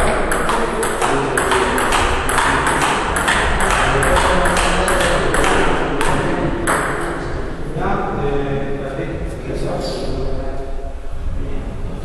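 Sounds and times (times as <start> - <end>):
ping-pong ball hitting paddles and table: 0.0 - 7.4.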